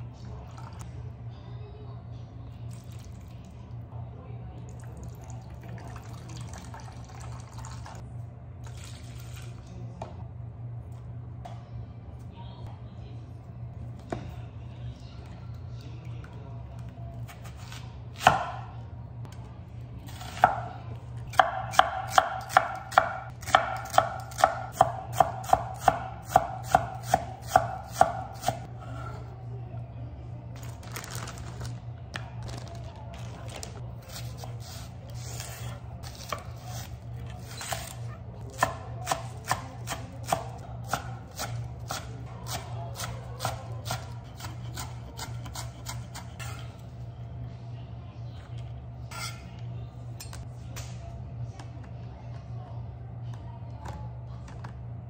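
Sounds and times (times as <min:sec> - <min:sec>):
knife chopping on wooden board: 0:21.3 - 0:28.6.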